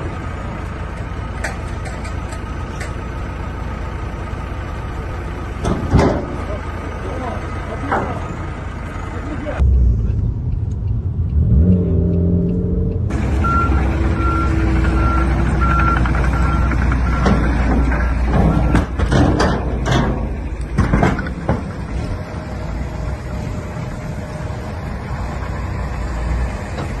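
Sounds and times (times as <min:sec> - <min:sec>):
heavy truck engine running: 0:00.0 - 0:27.0
reversing alarm beeping: 0:10.5 - 0:18.8
debris knocking and thudding: 0:17.2 - 0:21.8.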